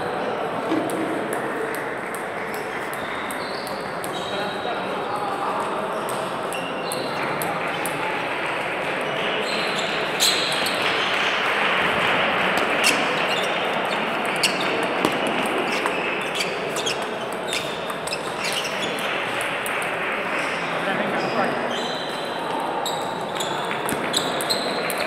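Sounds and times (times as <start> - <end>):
murmur and chatter of voices: 0.0 - 25.0
table tennis balls clicking: 9.9 - 20.4, 23.2 - 25.0.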